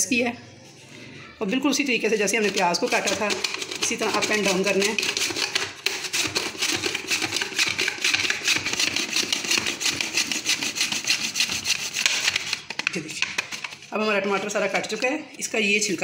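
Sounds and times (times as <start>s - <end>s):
mandoline slicer scraping: 2.1s - 12.7s.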